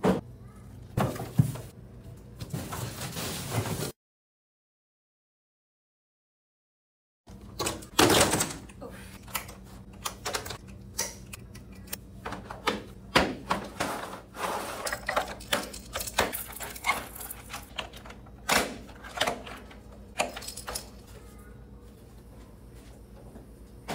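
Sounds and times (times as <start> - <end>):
hard plastic parts clattering: 13.4 - 21.0.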